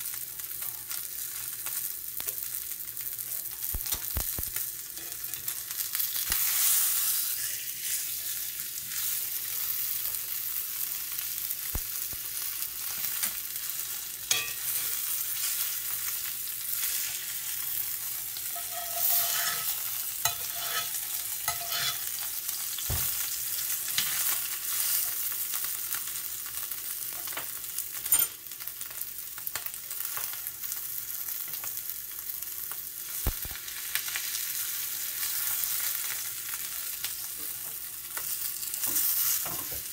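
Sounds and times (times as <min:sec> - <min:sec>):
steak sizzling in a pan: 0:00.0 - 0:39.9
metal spoon scraping a pan: 0:05.0 - 0:05.6, 0:14.3 - 0:15.8, 0:16.9 - 0:22.9, 0:23.9 - 0:24.9.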